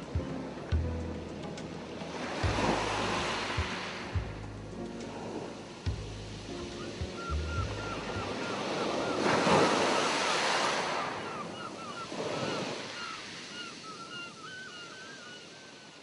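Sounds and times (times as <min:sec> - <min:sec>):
surf-like rushing noise: 0:01.6 - 0:14.1.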